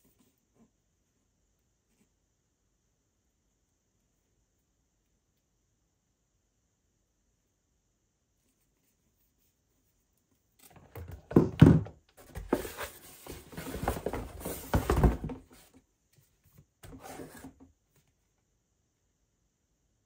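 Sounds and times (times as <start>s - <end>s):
cardboard scraping and knocking: 10.7s - 15.8s, 16.8s - 17.7s
plastic bottle thunking on wood: 10.8s - 12.5s.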